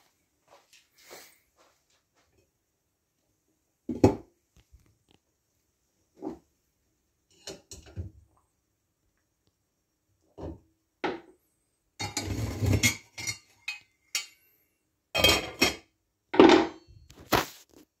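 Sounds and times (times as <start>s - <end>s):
tongs clattering against pot: 12.0s - 14.4s.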